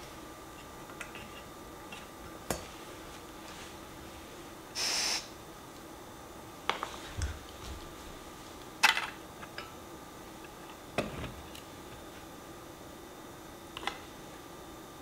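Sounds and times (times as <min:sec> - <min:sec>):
gas hissing from stove: 0:04.7 - 0:05.4.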